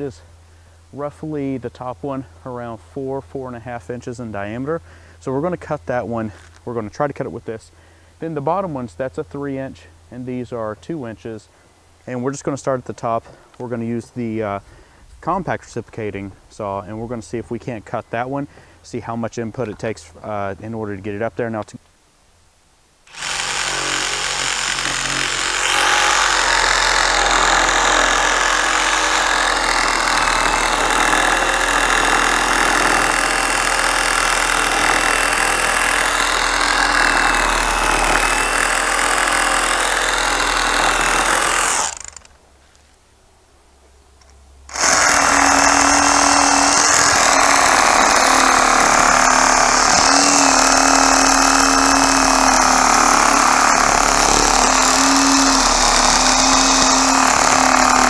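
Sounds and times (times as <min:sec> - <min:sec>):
reciprocating saw cutting wood: 0:23.1 - 0:42.3, 0:44.7 - 0:58.0.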